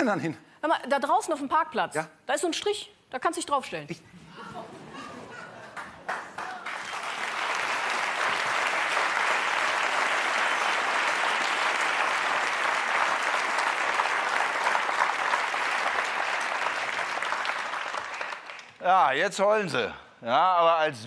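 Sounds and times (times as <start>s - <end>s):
audience applauding: 5.4s - 18.8s.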